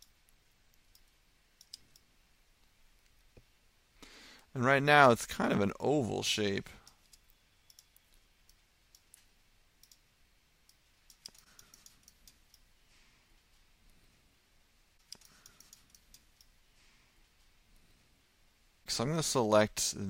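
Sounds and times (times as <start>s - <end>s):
mouse and keyboard clicks: 0.0s - 2.1s, 6.9s - 10.0s, 10.7s - 12.7s, 15.0s - 16.5s.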